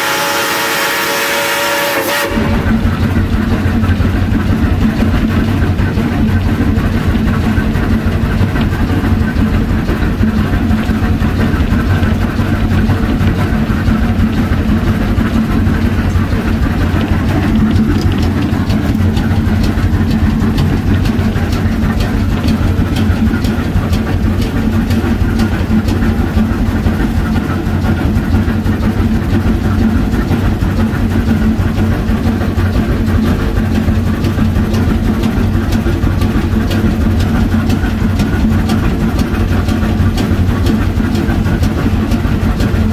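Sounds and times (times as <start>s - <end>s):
railroad car rumbling and rattling: 0.0s - 42.9s.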